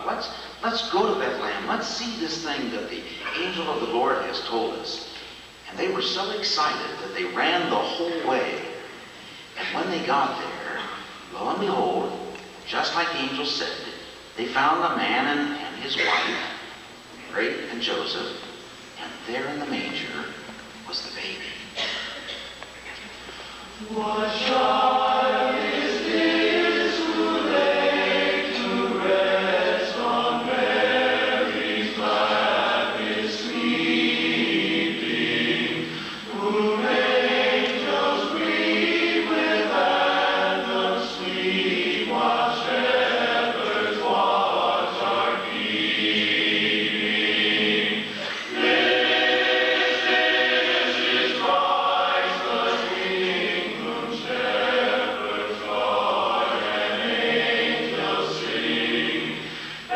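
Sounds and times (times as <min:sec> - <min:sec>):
male chorus singing in harmony: 0:23.7 - 0:59.9.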